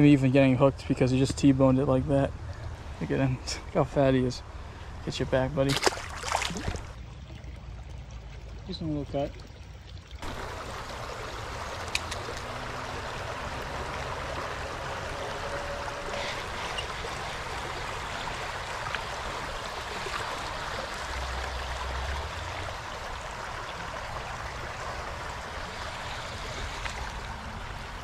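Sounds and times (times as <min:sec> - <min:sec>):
creek water rushing over rocks: 0:05.7 - 0:07.0, 0:10.2 - 0:28.0.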